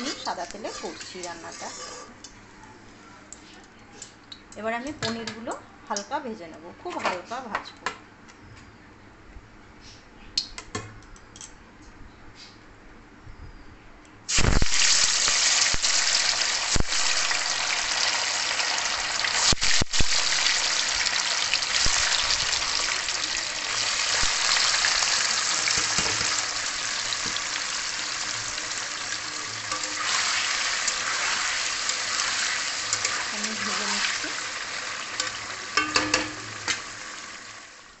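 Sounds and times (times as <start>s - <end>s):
cheese sizzling in hot oil: 14.3s - 38.0s.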